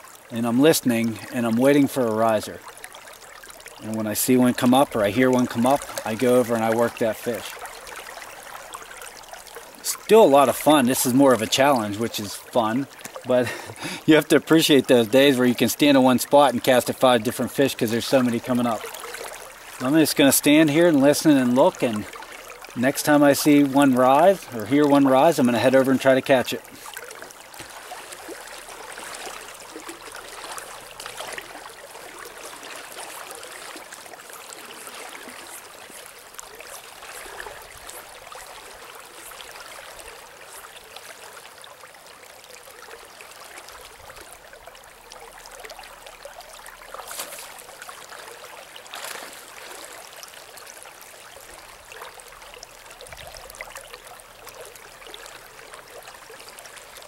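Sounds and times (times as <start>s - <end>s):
river current rushing: 3.7s - 41.8s.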